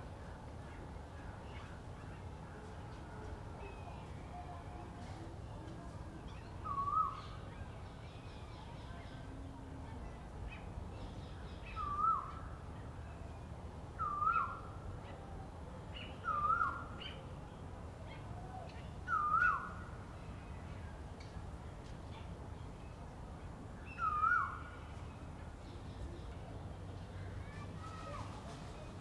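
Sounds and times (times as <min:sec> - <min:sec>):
bird calling clear notes: 0:14.0 - 0:14.7, 0:16.0 - 0:17.2, 0:18.6 - 0:19.8, 0:23.8 - 0:24.9.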